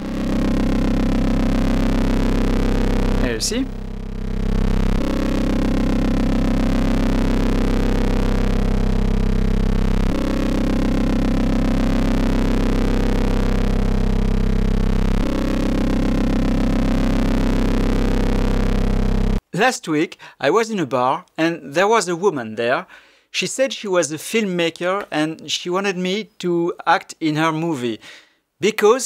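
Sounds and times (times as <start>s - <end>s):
synthesizer low drone: 0.0s - 19.4s.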